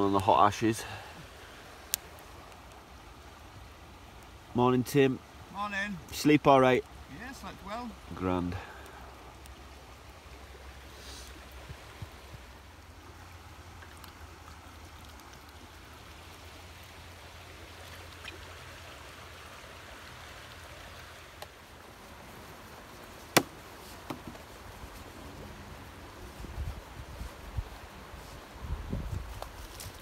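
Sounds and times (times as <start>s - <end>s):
river water flowing: 0.0s - 30.0s
wind rumble on microphone: 24.8s - 30.0s.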